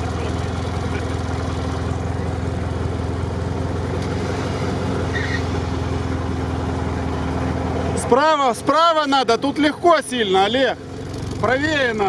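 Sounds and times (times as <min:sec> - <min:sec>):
vehicle engine running steadily: 0:00.0 - 0:12.0.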